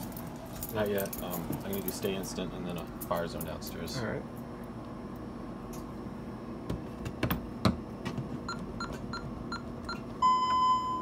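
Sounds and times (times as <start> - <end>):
long keypad beep: 8.5 - 11.0
short keypad beeps: 8.5 - 11.0.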